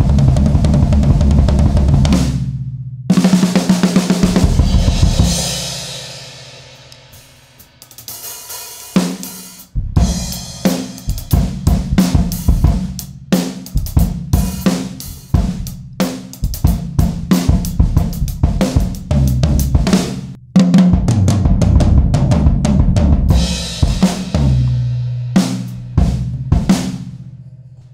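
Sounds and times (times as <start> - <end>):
drum kit groove: 0.0 - 27.9.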